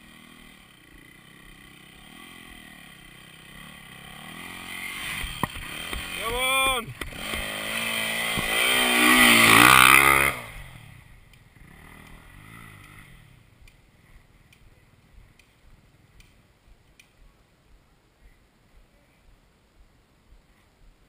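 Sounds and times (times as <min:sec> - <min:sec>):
dirt bike revving past: 0:00.0 - 0:14.2
light clicks: 0:14.5 - 0:15.6, 0:16.2 - 0:17.2.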